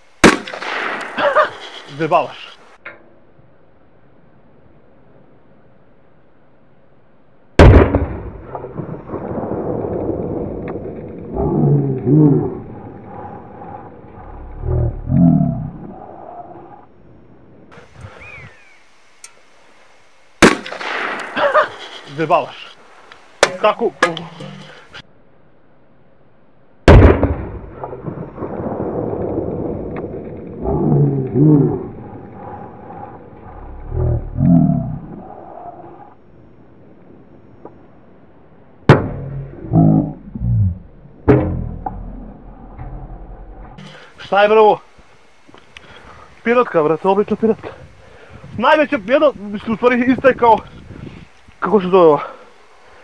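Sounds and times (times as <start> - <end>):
firecracker bang with echo: 0.2 - 1.5, 20.4 - 21.6
firecracker bang echoing: 0.2 - 1.7, 7.6 - 9.5, 20.4 - 21.7, 38.9 - 44.0.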